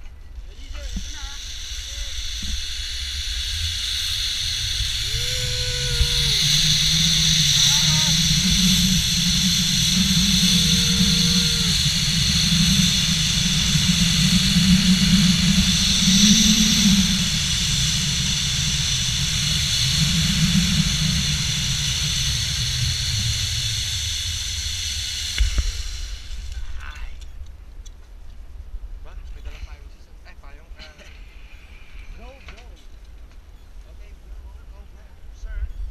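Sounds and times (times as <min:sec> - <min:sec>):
pulleys whirring along cable: 0:00.6 - 0:26.9
wind buffeting microphone: 0:03.4 - 0:26.7.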